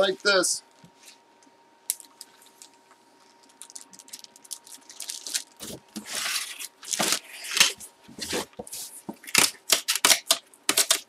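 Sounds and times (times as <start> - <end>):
cardboard crinkling and tearing: 3.6 - 8.6.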